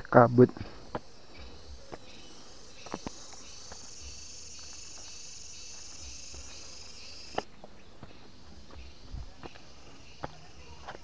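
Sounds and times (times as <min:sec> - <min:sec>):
high insect drone: 0:00.0 - 0:11.0.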